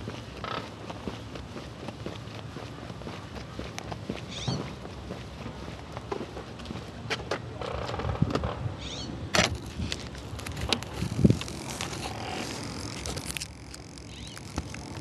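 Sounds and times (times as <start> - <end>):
model plane scraping on asphalt: 9.7 - 13.7.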